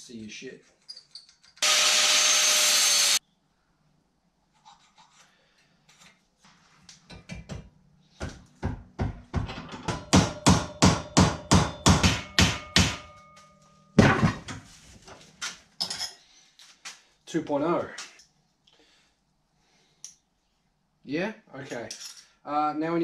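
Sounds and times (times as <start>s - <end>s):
angle grinder on steel: 1.6s - 3.2s
hammer striking steel bracket: 8.7s - 14.5s.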